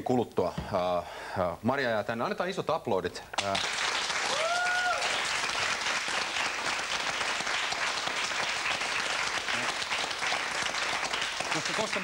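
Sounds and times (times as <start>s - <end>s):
studio audience applauding: 3.3s - 12.0s.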